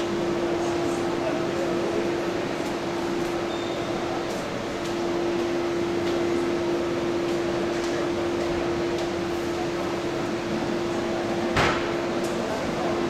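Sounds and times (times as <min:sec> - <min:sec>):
air conditioning hum and hiss: 0:00.0 - 0:13.0.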